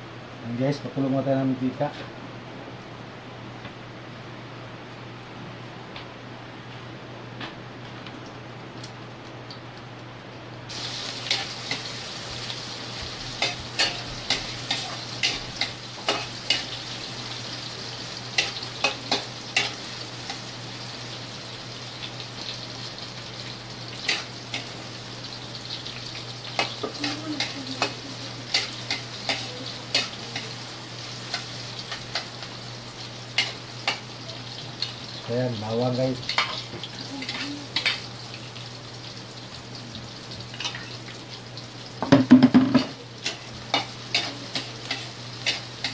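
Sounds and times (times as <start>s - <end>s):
onions sizzling in oil: 9.3s - 45.9s
spatula clacking and scraping pan: 13.4s - 16.8s, 18.4s - 20.4s, 24.1s - 24.8s, 26.5s - 30.5s, 33.4s - 34.1s, 36.2s - 38.0s, 42.1s - 45.9s.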